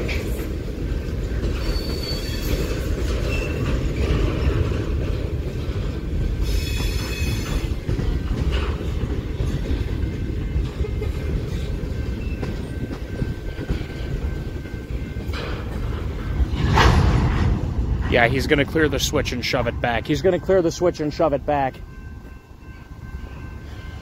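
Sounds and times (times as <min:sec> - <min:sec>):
train wheels rumbling on rail: 0:00.0 - 0:24.0
high-pitched wheel squeal: 0:01.6 - 0:03.7, 0:06.4 - 0:07.7.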